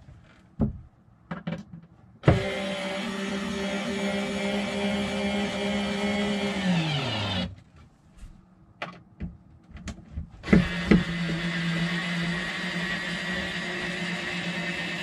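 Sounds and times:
electric drill motor running: 0:02.3 - 0:07.5, 0:10.4 - 0:15.0.

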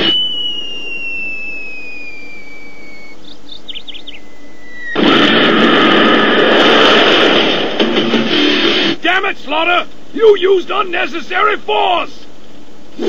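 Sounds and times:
short bird-like chirps: 0:00.0 - 0:05.0
cartoon falling whistle: 0:00.0 - 0:06.3
loud dense roar: 0:04.9 - 0:07.8.

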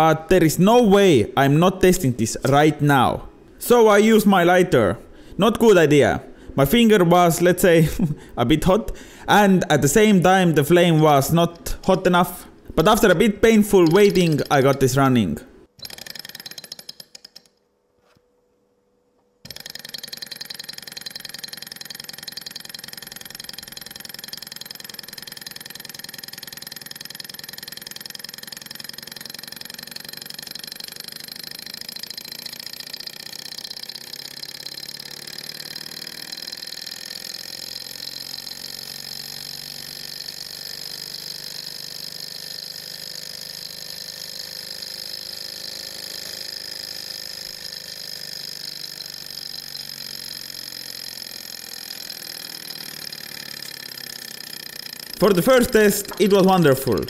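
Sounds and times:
model engine clattering: 0:12.9 - 0:15.0, 0:15.8 - 0:17.6, 0:19.4 - 0:56.5.

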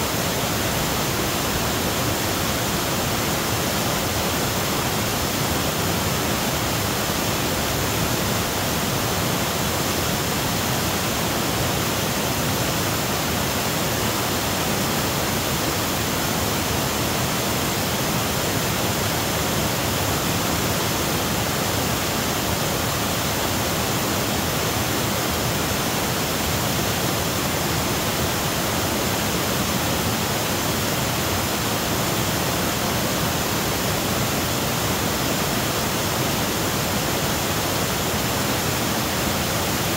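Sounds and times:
waterfall rushing over boulders: 0:00.0 - 0:39.9.

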